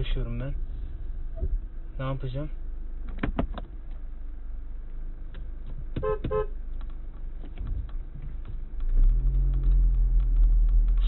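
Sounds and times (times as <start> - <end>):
car engine drone: 0.0 - 11.0
car horn toots: 6.0 - 6.5.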